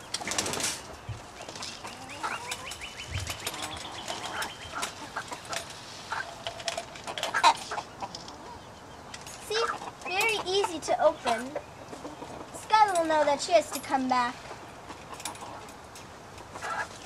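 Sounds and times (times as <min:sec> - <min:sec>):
birds calling: 0:00.0 - 0:17.0
chickens clucking: 0:00.0 - 0:17.0.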